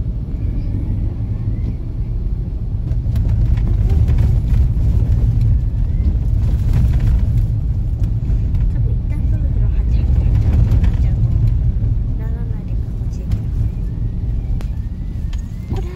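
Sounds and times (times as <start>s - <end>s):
tyres rumbling on rutted road: 0.0s - 15.9s
car jolts and rattles: 2.7s - 14.2s.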